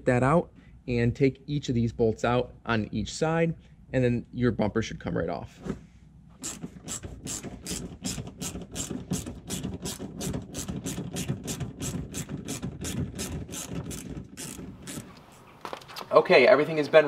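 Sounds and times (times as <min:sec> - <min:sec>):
hand ratchet clicking: 0:06.4 - 0:15.1.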